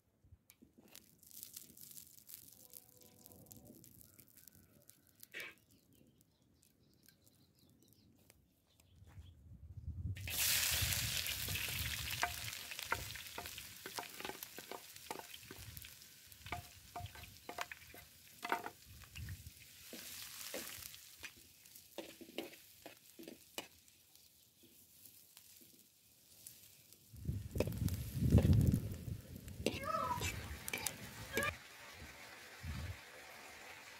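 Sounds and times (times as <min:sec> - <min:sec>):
onions sizzling in hot fat: 0:00.8 - 0:07.5, 0:10.2 - 0:33.9
knife and ladle scraping: 0:29.6 - 0:31.5.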